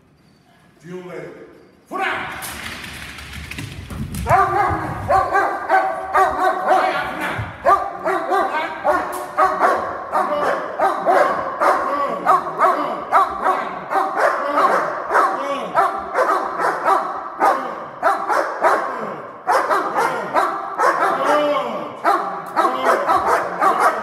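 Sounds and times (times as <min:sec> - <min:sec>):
dogs barking: 0:04.2 - 0:24.0.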